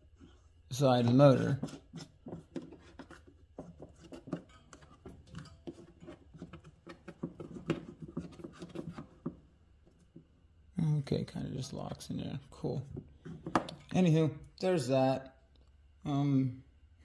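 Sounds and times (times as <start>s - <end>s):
plastic cap clicking and scraping: 1.0s - 9.4s.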